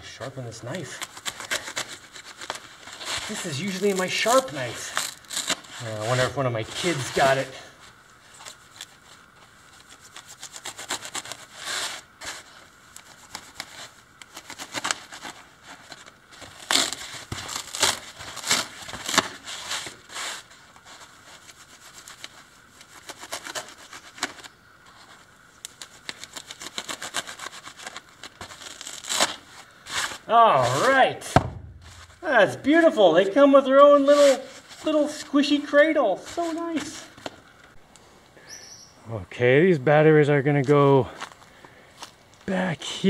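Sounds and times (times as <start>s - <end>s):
foam scraping and tearing: 0.0s - 37.4s
knife sawing through foam: 10.0s - 12.4s, 26.2s - 30.8s.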